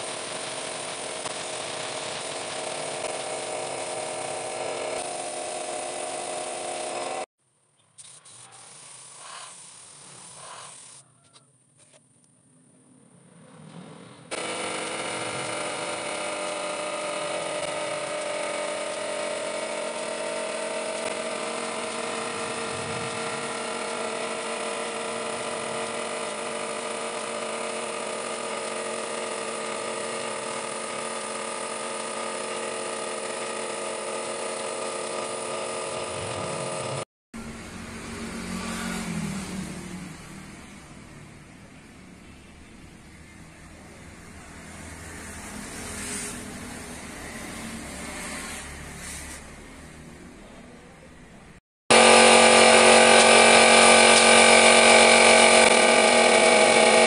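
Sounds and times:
machine humming with whining tones: 14.2 - 50.8, 51.9 - 57.0.

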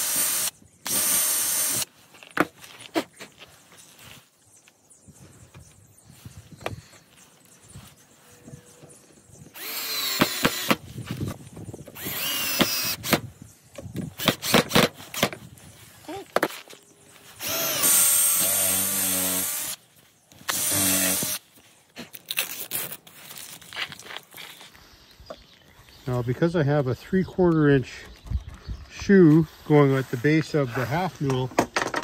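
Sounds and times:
cordless drill motor whine: 0.0 - 1.9, 9.5 - 10.8, 11.8 - 13.3, 17.4 - 19.8, 20.5 - 21.4
handling knocks and clicks: 31.3 - 32.0.

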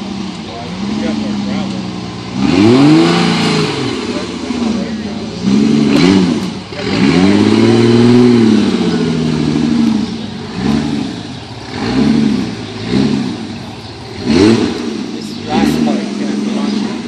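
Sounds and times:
off-road vehicle engine revving: 0.0 - 17.0.

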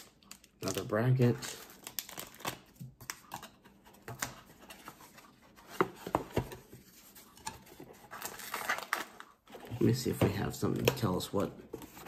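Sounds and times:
packaging rustling: 0.0 - 3.4, 7.2 - 10.0.

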